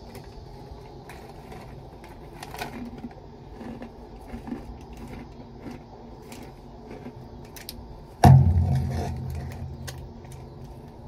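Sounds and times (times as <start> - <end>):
plastic snack bag crinkling: 1.0 - 7.7
low rumble: 8.2 - 11.0.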